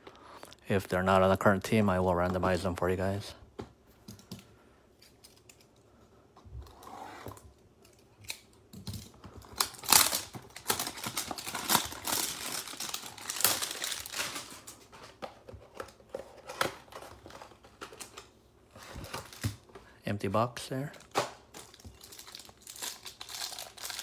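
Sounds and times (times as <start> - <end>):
cardboard box crackling and crinkling: 9.5 - 14.6.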